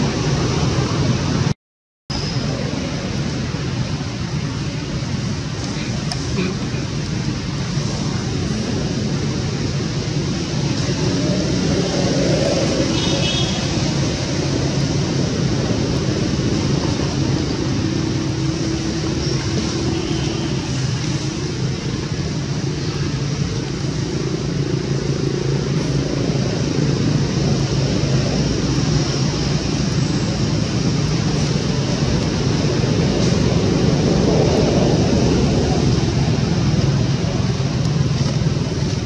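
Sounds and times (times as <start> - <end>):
low rumble with hiss: 2.1 - 39.0.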